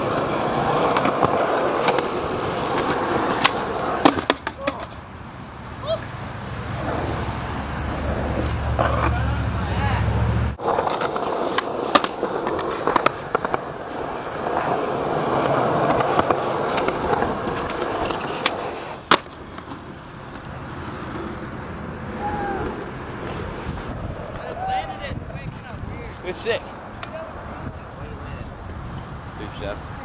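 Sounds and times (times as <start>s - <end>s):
skateboard clacks: 0.0s - 5.0s, 10.6s - 24.8s
skateboard wheels rolling on asphalt: 0.0s - 30.0s.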